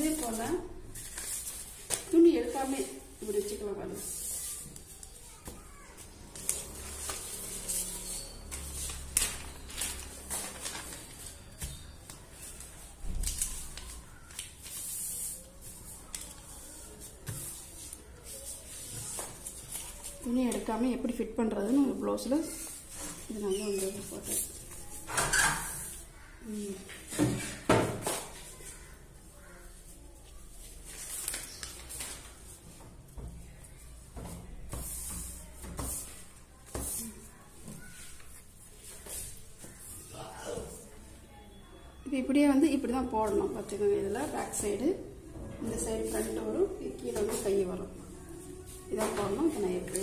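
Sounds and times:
paper rustling on fabric: 0.0s - 20.7s, 28.4s - 32.6s.

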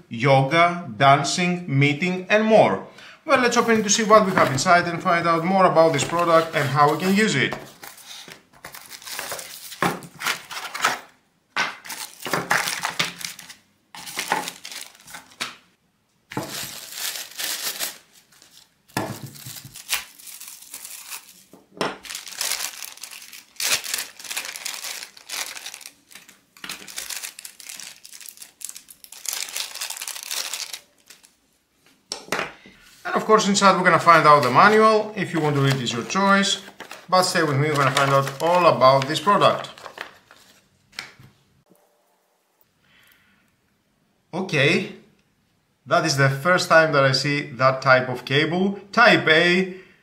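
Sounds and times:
plastic bags crinkling: 5.9s - 11.0s, 11.8s - 15.5s, 16.3s - 31.4s, 33.8s - 40.7s.

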